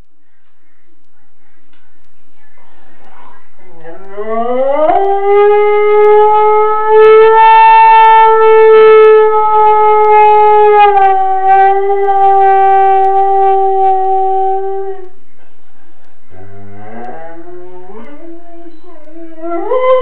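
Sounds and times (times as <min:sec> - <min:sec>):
dog howling: 0:03.8 - 0:15.1, 0:16.3 - 0:20.0.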